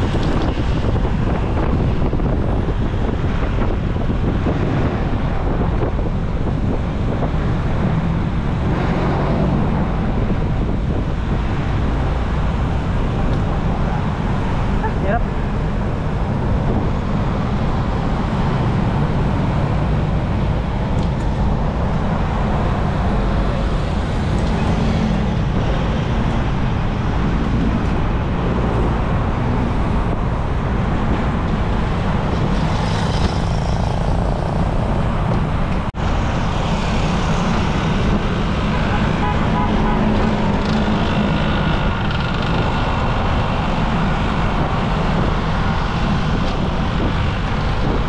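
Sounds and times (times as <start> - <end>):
cars passing: 0.0 - 48.0
wind noise: 0.0 - 48.0
motorcycles passing: 11.8 - 48.0.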